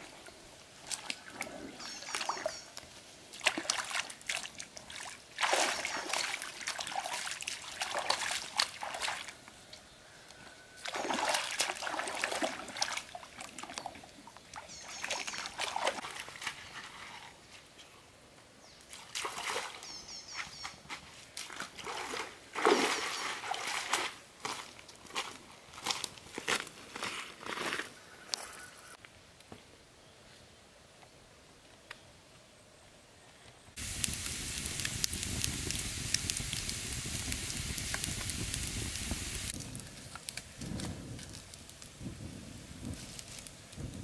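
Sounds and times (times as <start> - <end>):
feet splashing through shallows: 3.3 - 9.4, 10.8 - 14.0, 14.6 - 16.7, 19.0 - 19.8, 21.0 - 24.7
hands splashing in stream water: 3.3 - 9.4, 10.8 - 14.0, 21.4 - 24.2.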